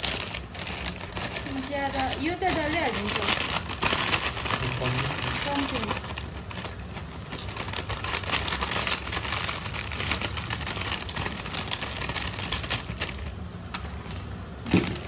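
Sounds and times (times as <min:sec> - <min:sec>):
snack pieces pouring into pan: 0:00.0 - 0:06.4
plastic packet crinkling: 0:00.0 - 0:15.0.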